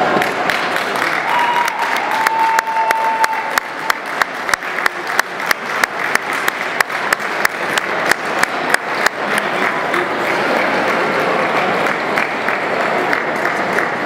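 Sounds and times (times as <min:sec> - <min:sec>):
crowd applauding: 0:00.0 - 0:14.0
close sharp clapping: 0:00.1 - 0:14.0.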